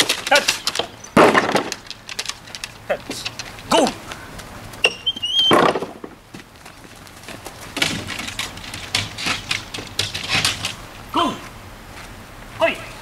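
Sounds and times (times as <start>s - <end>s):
dog paws knocking on wood: 5.5s - 10.8s.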